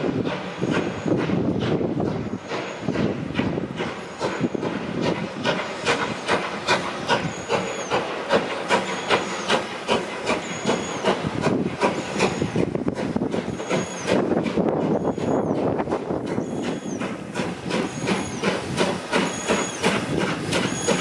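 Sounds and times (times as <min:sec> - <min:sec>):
steam hiss: 0:00.0 - 0:21.0
steam locomotive exhaust chuffing: 0:00.0 - 0:21.0
short high squeak: 0:16.3 - 0:17.0.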